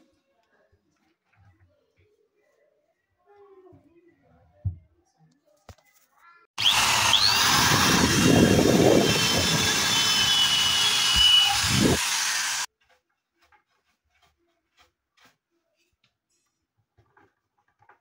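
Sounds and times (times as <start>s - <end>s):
electric drill whining: 6.6s - 12.7s.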